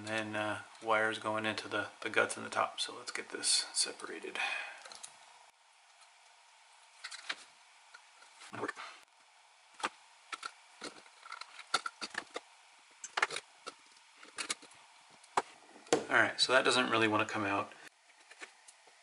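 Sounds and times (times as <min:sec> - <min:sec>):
metal and plastic parts clicking: 0:09.8 - 0:12.4, 0:13.0 - 0:14.7.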